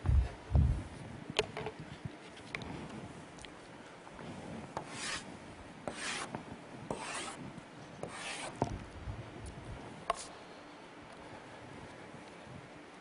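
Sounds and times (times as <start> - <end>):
chalk scratching on blackboard: 4.8 - 5.3, 5.9 - 7.4, 8.0 - 8.7.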